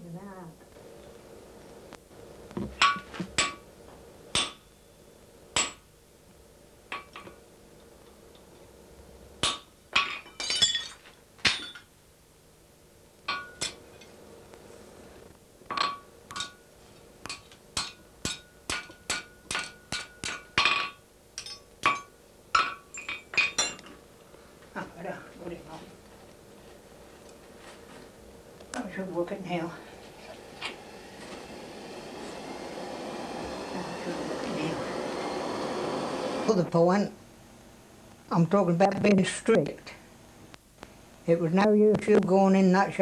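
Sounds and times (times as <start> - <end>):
hammer striking iron on anvil: 2.8 - 3.6, 4.3 - 4.7, 5.6 - 5.8, 9.4 - 10.2, 13.3 - 13.8, 15.7 - 16.6, 17.2 - 23.8.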